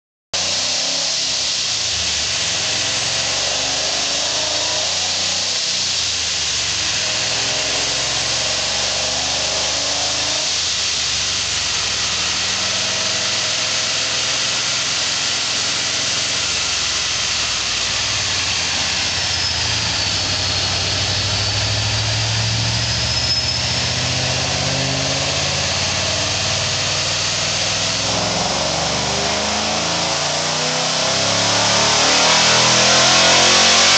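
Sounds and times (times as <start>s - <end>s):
loud steady hiss: 0.4s - 23.1s
car engine idling: 10.1s - 23.1s.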